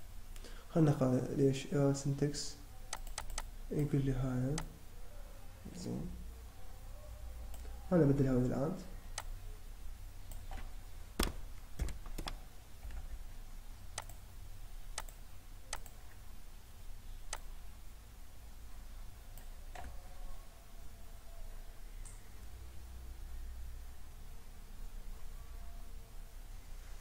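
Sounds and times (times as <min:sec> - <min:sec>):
low steady hum: 0:00.0 - 0:27.0
keyboard key presses: 0:02.9 - 0:03.5, 0:10.3 - 0:13.1
mouse clicks: 0:02.9 - 0:03.9, 0:14.0 - 0:14.2, 0:15.0 - 0:16.0, 0:17.3 - 0:17.5.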